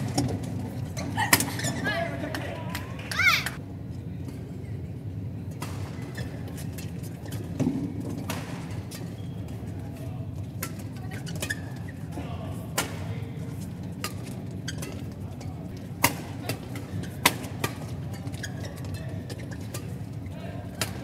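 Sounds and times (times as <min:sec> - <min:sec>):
arena hum and murmur: 0:00.0 - 0:21.0
racket hitting shuttlecock: 0:15.9 - 0:18.4, 0:20.8 - 0:21.0.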